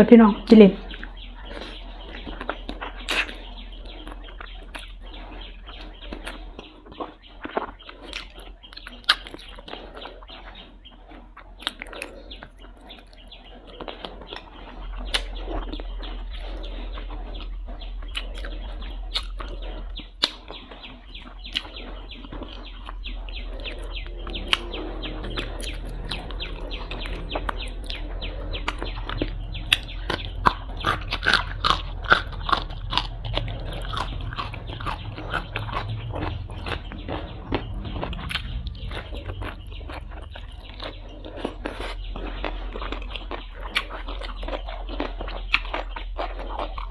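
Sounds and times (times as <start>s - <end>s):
raw vegetable crunching: 0.0s - 46.9s
chewing and sucking: 0.8s - 46.9s
bone crunching: 28.6s - 46.9s.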